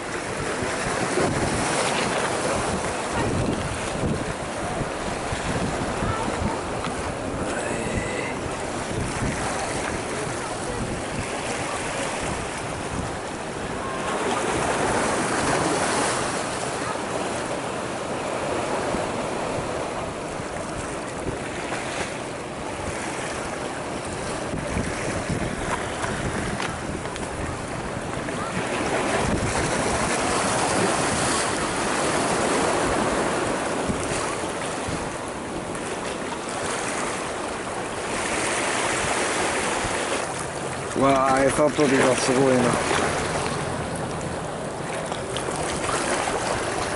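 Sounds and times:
wind on microphone: 0.0s - 17.6s, 18.2s - 46.9s
waves splashing over rocks: 0.0s - 46.9s.

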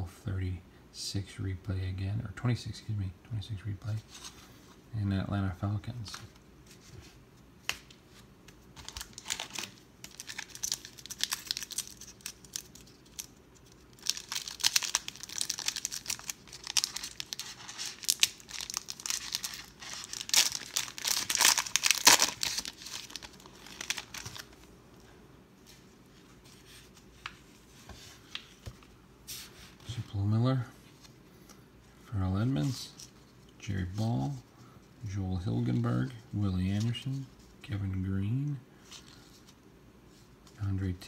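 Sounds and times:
wrapper crinkling and tearing: 8.8s - 24.7s.

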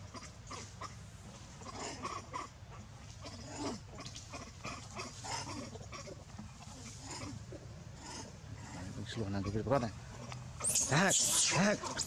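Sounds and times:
macaques squeaking and grunting: 0.0s - 12.0s
low sliding monkey call: 10.2s - 12.0s.

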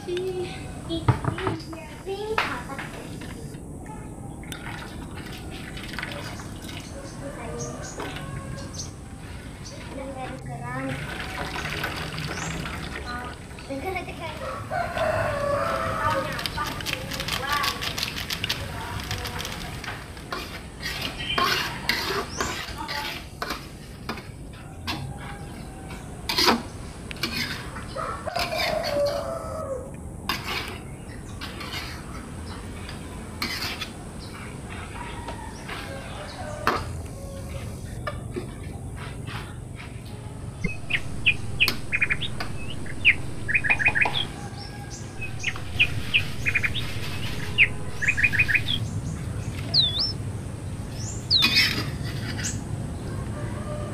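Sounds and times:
birds chirping: 0.0s - 19.5s, 40.4s - 52.7s
metal spatula scraping a wok: 20.3s - 24.3s, 27.2s - 27.8s, 33.4s - 34.0s.

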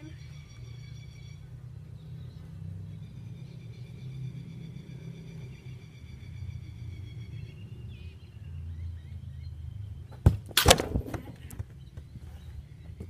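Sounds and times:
ball kicked: 10.1s - 12.1s
ball hitting goal net: 10.2s - 11.7s.

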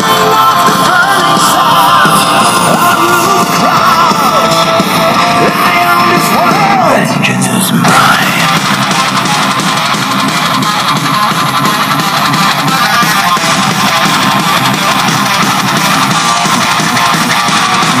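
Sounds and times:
guitar music through speaker: 0.0s - 18.0s.

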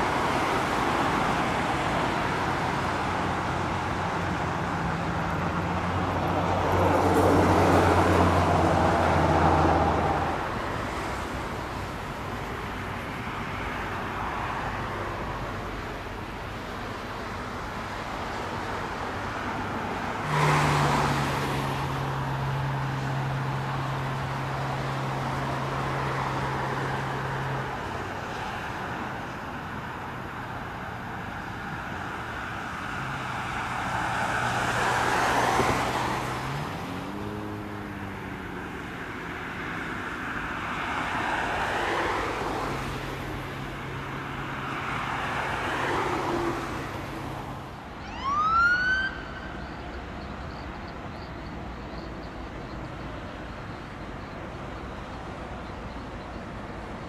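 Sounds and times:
vehicles passing on motorway: 0.0s - 57.0s
siren wail: 48.0s - 49.8s.

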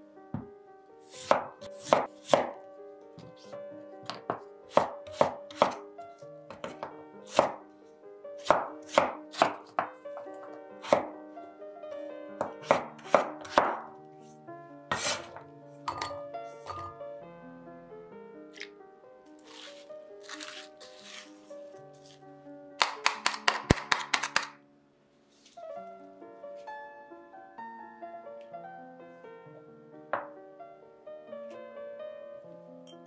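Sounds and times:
soft background music: 0.0s - 33.0s
knife chopping on cutting board: 1.1s - 2.6s, 4.1s - 5.8s, 6.5s - 7.6s, 8.4s - 9.9s, 10.8s - 11.1s, 12.4s - 13.8s, 14.9s - 15.4s, 19.5s - 21.3s, 22.8s - 24.5s.

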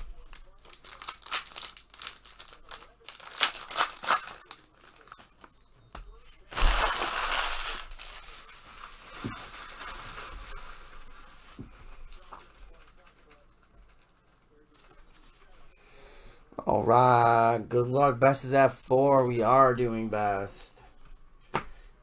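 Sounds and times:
plastic wrappers crinkling: 0.1s - 5.6s, 6.4s - 11.6s
wrapper tearing open: 0.3s - 5.5s, 6.5s - 10.1s.

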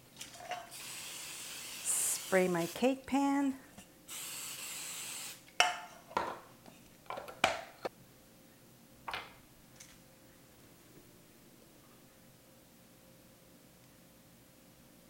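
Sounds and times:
cooking spray hissing: 0.4s - 3.2s, 4.1s - 5.5s.

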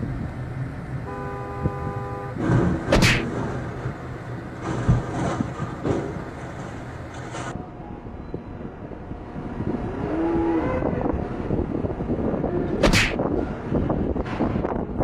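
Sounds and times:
vehicle and road noise: 0.0s - 15.0s.

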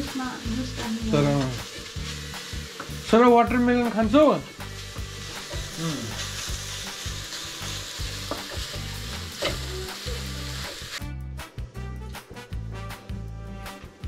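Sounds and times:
carrot sizzling in hot fat: 0.0s - 11.1s
background music: 0.0s - 14.0s.

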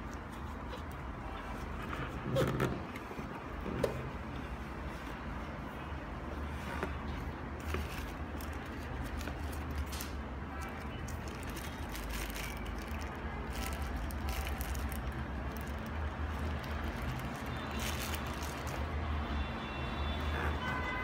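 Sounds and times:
plastic bag crinkling: 7.5s - 19.0s.

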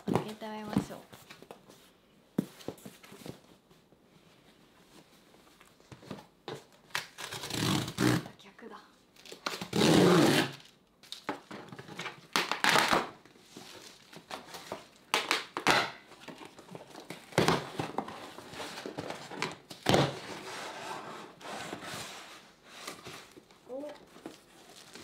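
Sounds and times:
packaging crinkling and rustling: 10.5s - 20.4s, 22.8s - 25.0s.

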